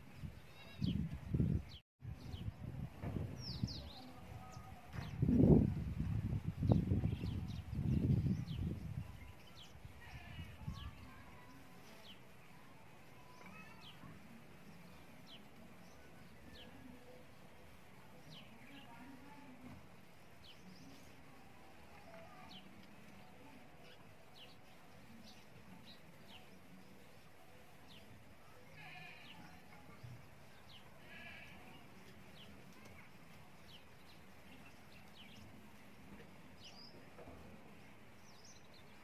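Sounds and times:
small birds chirping: 0.0s - 39.0s
faint livestock bleats: 10.0s - 10.8s, 28.6s - 29.6s, 31.0s - 31.8s.

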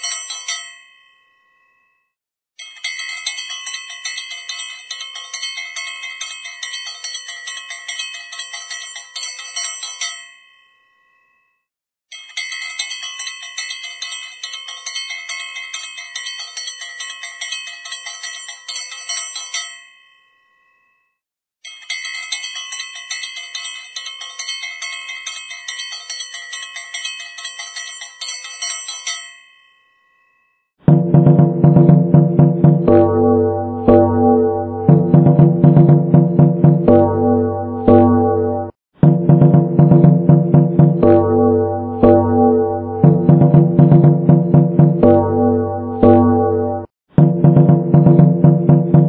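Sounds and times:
bell struck rapidly: 30.9s - 49.0s.

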